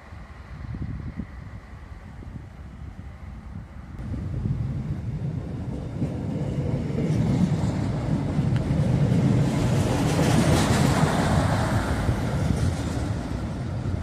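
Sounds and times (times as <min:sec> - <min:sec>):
diesel train engine rumble: 0:00.0 - 0:14.0
train wheel and rail noise: 0:00.0 - 0:14.0.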